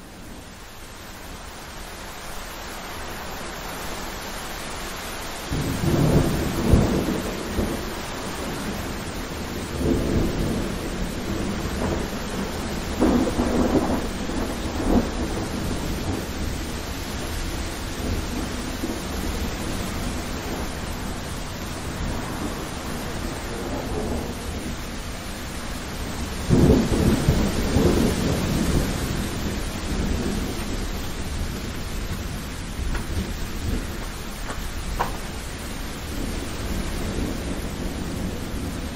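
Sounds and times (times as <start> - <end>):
steady rain: 0.0 - 38.9
rolling thunder: 5.5 - 38.9.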